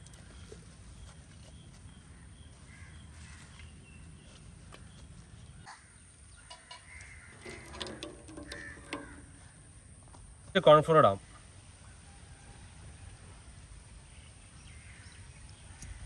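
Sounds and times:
crows cawing: 2.7 - 3.5, 5.7 - 9.8.

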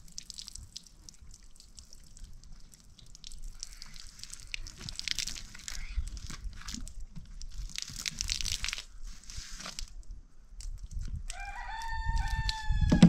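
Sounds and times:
hose water splashing on concrete: 0.0 - 10.0.

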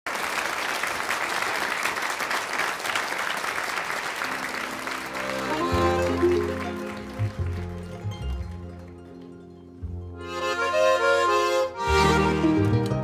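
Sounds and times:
audience applauding: 0.1 - 10.0
button accordion held notes: 5.2 - 6.7, 10.1 - 13.0.

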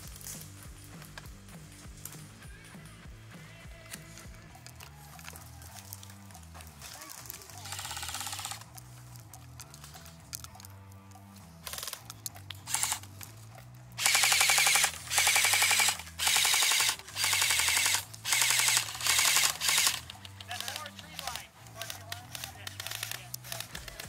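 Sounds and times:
airsoft rifles firing bursts: 7.0 - 8.9, 11.6 - 13.2, 14.0 - 24.0.

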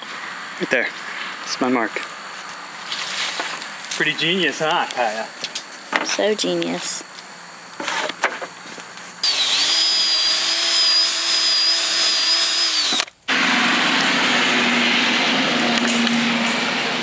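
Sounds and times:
cordless drill boring into wood: 9.2 - 13.2.

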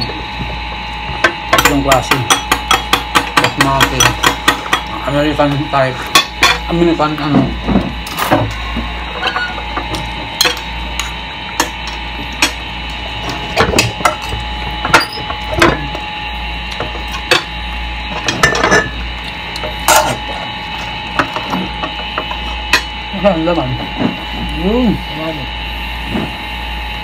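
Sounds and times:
steady background hum: 0.0 - 27.0
dishes and utensils clinking: 18.2 - 19.0.

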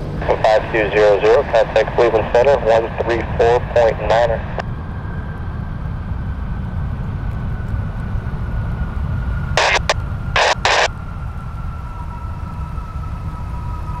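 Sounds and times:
jet engine rumble and whine: 0.0 - 14.0
radio static bursts: 0.2 - 4.6, 9.6 - 10.9.

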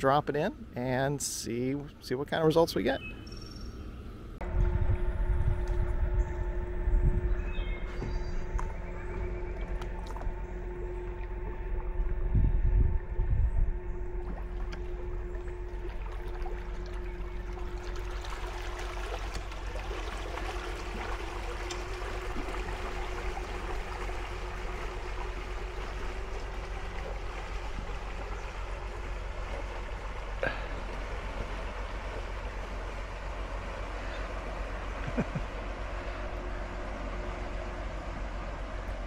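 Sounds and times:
small boat motors humming: 0.0 - 39.0
rush of water and wake: 14.2 - 39.0.

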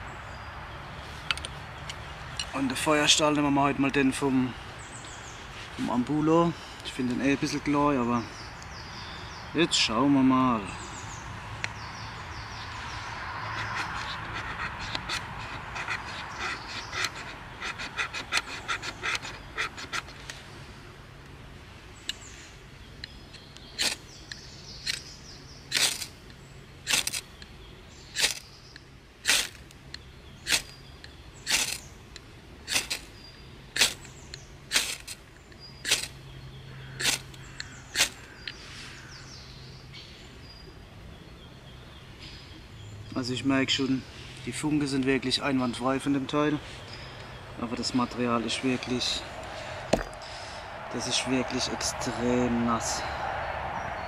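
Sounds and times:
knife scraping ferro rod: 13.5 - 20.3, 23.8 - 24.0, 25.7 - 26.1, 26.9 - 27.2, 28.2 - 28.4, 29.2 - 29.6, 30.4 - 30.8, 31.5 - 31.8, 32.7 - 33.1, 33.8 - 34.1, 34.7 - 35.2, 35.8 - 36.2, 37.0 - 38.3
quick light scraping: 13.5 - 20.4, 23.8 - 24.1, 25.7 - 26.2, 26.9 - 27.3, 28.2 - 28.5, 29.2 - 29.7, 30.4 - 30.8, 31.5 - 31.9, 32.7 - 33.2, 33.8 - 35.2, 35.8 - 36.2, 37.0 - 38.9.

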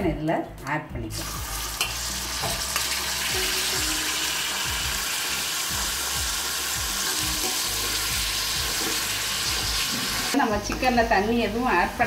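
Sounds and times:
chicken sizzling in hot oil: 1.1 - 10.4
ladle scraping a pan: 7.0 - 9.2.

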